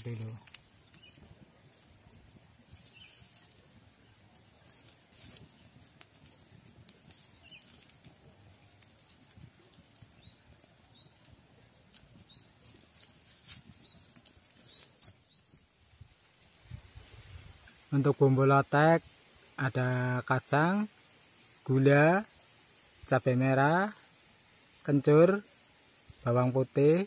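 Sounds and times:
sharp pops and ticks: 0.0 - 16.8
fire crackling: 0.0 - 27.0.

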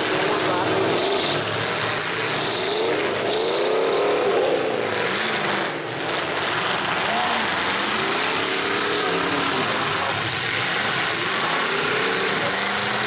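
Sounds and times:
car engines revving: 0.0 - 13.0.

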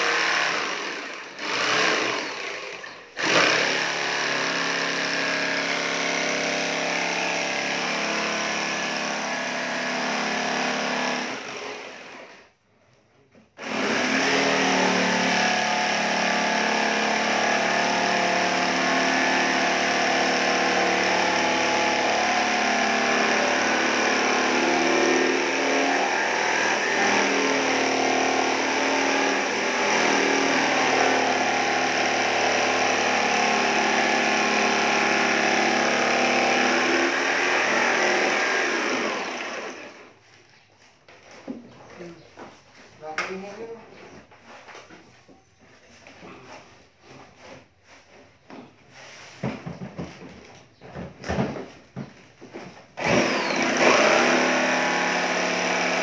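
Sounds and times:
saw blade rasping through wood: 0.0 - 12.4, 13.6 - 40.2, 53.0 - 56.0
jigsaw motor whine: 0.0 - 12.5, 13.6 - 40.2, 53.0 - 56.0.

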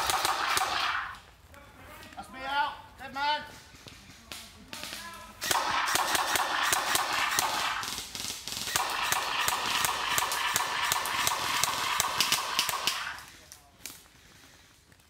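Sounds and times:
rapid gunfire bursts from speaker: 5.4 - 8.0, 8.7 - 13.2.

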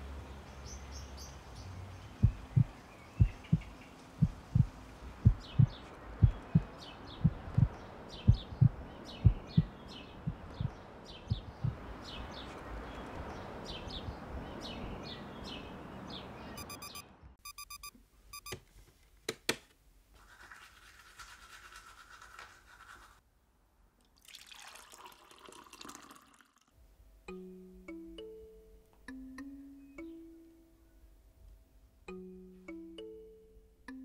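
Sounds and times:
birds chirping: 0.2 - 17.3
alarm clock beeping: 16.6 - 18.5.

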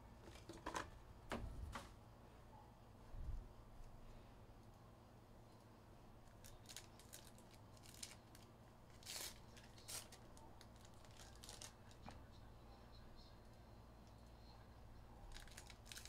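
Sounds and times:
card packaging tearing and crinkling: 6.4 - 12.0, 15.3 - 16.0.

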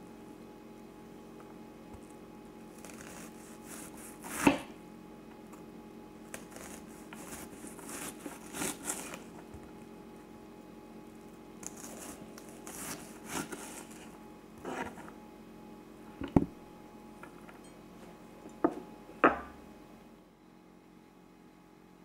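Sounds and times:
knife scraping and rustling: 2.7 - 4.7, 6.3 - 9.5, 11.6 - 15.2.

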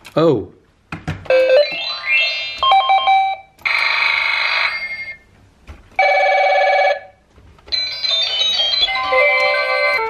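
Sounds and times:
toy telephone ringing: 1.3 - 5.2, 7.7 - 10.0.

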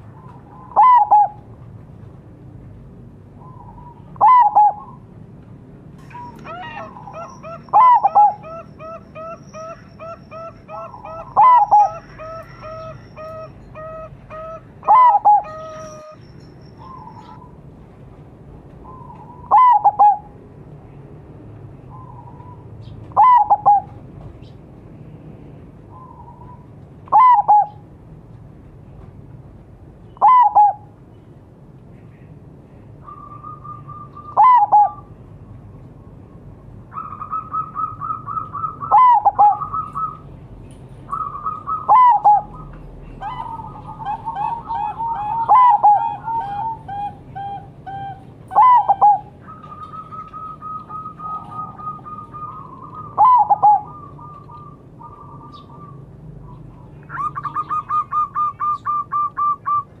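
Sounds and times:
doves cooing: 0.0 - 1.5, 3.4 - 5.0, 6.0 - 16.2, 18.8 - 20.4, 21.9 - 24.1, 25.9 - 27.8, 30.2 - 30.9, 33.0 - 35.1, 36.9 - 40.3, 41.1 - 60.0.

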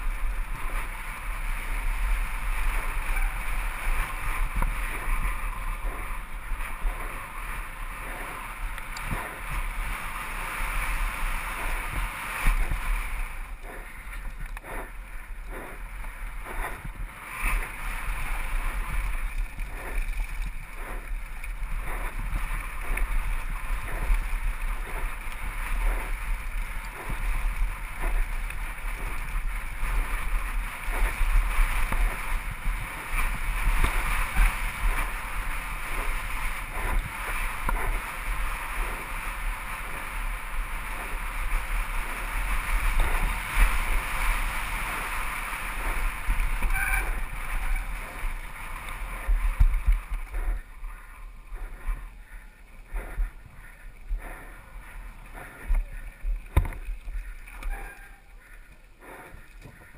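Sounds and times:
wind rushing over microphone: 0.0 - 58.0
bike rattling over rocky trail: 0.0 - 58.9.

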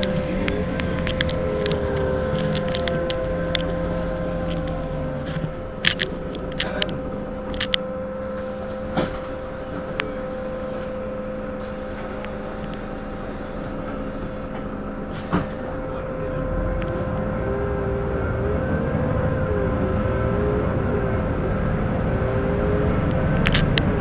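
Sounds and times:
sharp clicks and knocks: 0.0 - 7.8
bus engine idling: 0.0 - 24.0.

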